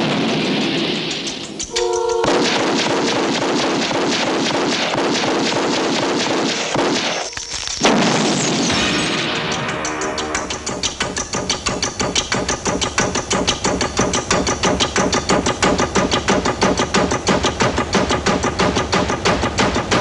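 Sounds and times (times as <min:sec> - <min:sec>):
rapid gunfire: 0:00.0 - 0:20.0
clarinet note: 0:01.7 - 0:02.3
orchestral film music: 0:08.7 - 0:11.9.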